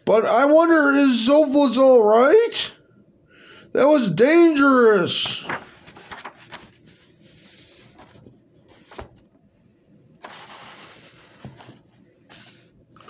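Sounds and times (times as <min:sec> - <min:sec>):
paper rustling and handling: 0:05.1 - 0:09.4, 0:10.2 - 0:12.7.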